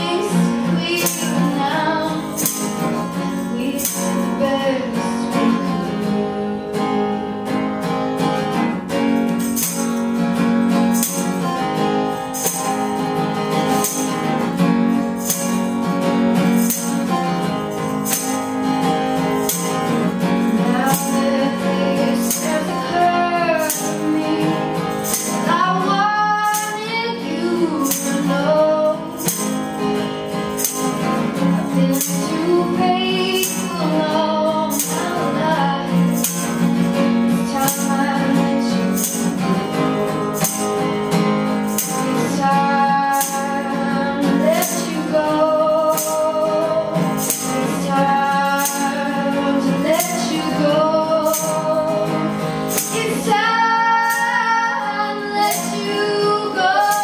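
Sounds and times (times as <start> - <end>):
hand percussion rattle: 0.0 - 6.0, 8.2 - 57.0
woman singing: 0.0 - 7.6, 19.5 - 29.9, 30.6 - 40.8, 41.7 - 57.0
strummed acoustic guitar: 0.0 - 57.0.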